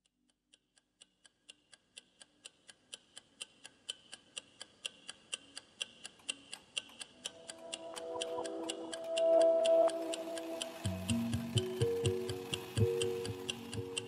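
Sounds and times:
clock ticking: 0.2 - 14.0.

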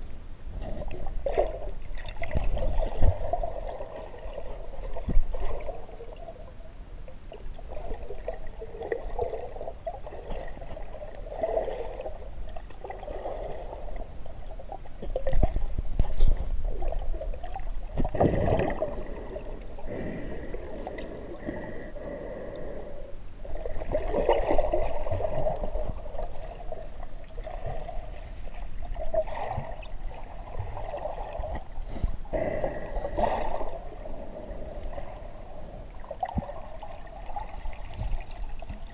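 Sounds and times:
muffled underwater water rush: 0.0 - 38.9
dull underwater bumps: 37.7 - 38.9.

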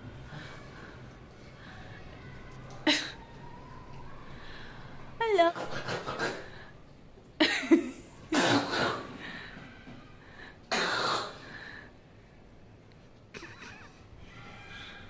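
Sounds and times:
person coughing: 7.4 - 9.2, 13.4 - 14.0.

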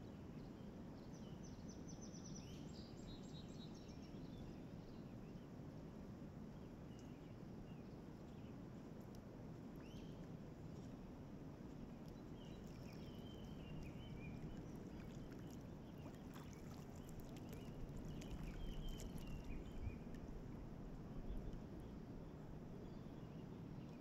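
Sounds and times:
low steady rumble: 0.3 - 24.0
paddle splashing water: 11.7 - 20.8
birds chirping: 12.2 - 20.2.

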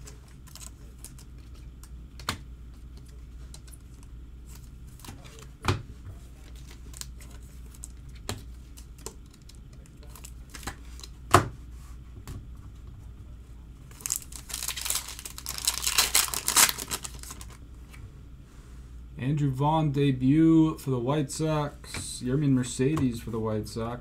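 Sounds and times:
foil wrapper tearing and crinkling: 13.9 - 17.6.

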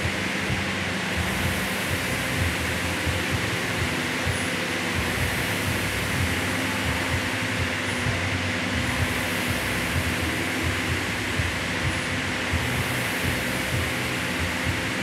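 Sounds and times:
constant hum: 0.0 - 15.0
rowing machine fan whirring: 0.0 - 15.0.

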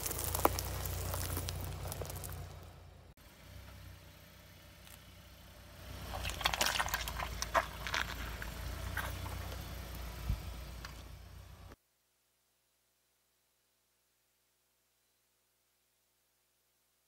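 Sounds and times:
car engine hum: 0.0 - 11.8.

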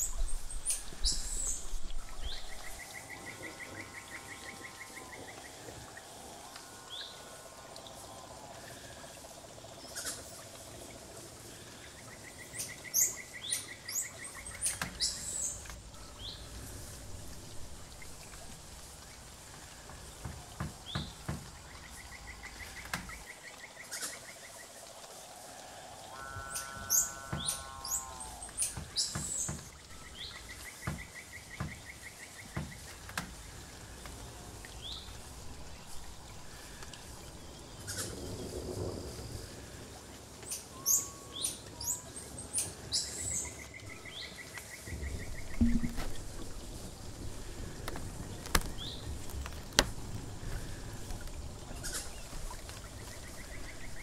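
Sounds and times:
sharp clicks and knocks: 45.6 - 46.4.

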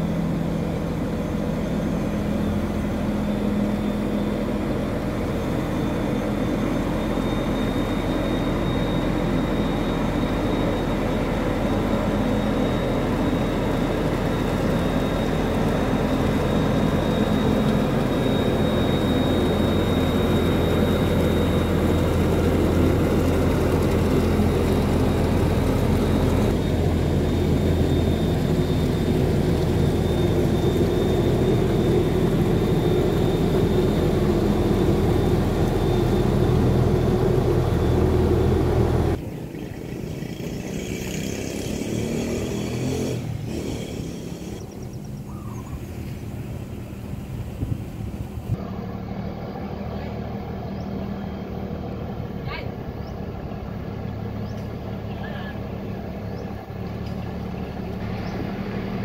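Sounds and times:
boat engine droning: 0.0 - 59.0
thin steady whine: 0.0 - 59.0.

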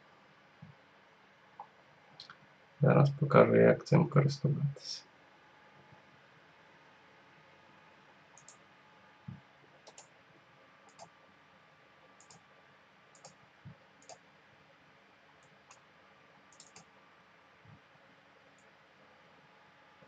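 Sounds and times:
computer mouse clicks: 8.3 - 8.6, 9.8 - 10.1, 10.8 - 11.1, 12.2 - 12.4, 13.1 - 13.4, 14.0 - 14.2, 15.4 - 15.8, 16.5 - 16.9.

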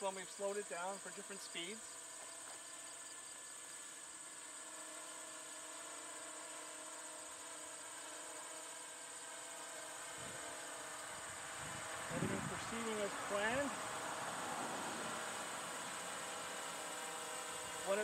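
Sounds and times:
drone motors and propellers humming: 0.1 - 18.0
high-pitched hiss: 10.2 - 16.8.

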